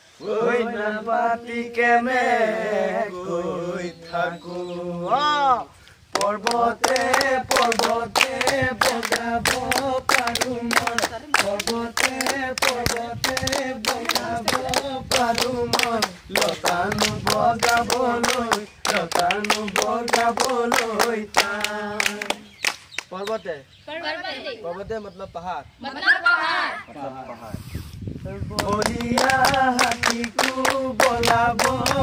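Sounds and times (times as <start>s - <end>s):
hands clapping in rhythm: 6.1s - 23.4s, 28.5s - 32.0s.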